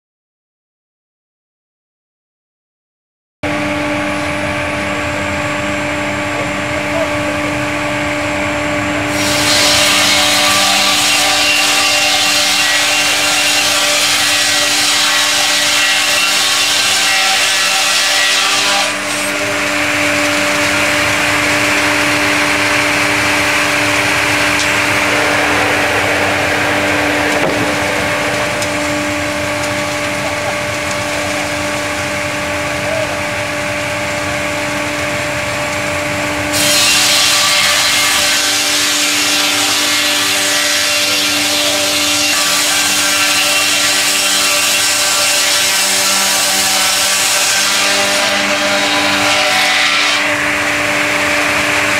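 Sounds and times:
motor hum: 3.4 - 14.6, 18.9 - 36.6
saw blades cutting log: 8.9 - 34.9, 36.5 - 51.9.

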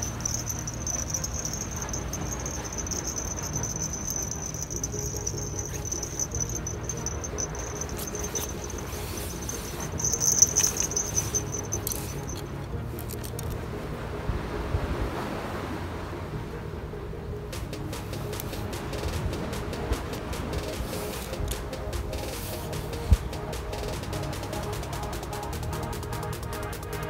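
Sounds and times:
insect trilling: 0.0 - 12.4.

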